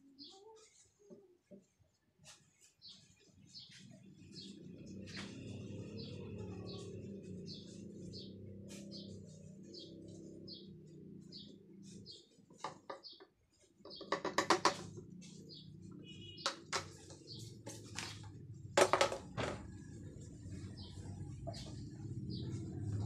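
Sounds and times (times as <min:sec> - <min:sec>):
clicks and knocks on wheel: 0:13.8 - 0:15.0.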